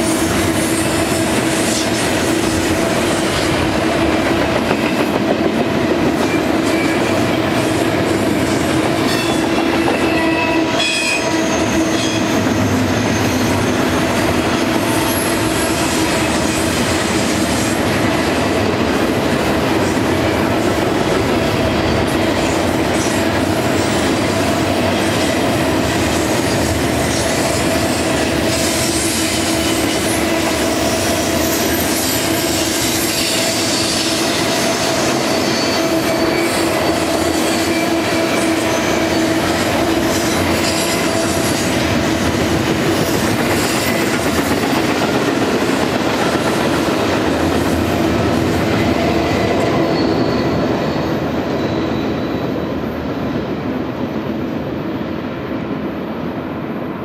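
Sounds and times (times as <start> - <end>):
steel wheels rumbling on rail: 0.0 - 57.0
wheels squealing against rail: 6.2 - 18.3, 21.5 - 45.1, 48.4 - 53.6.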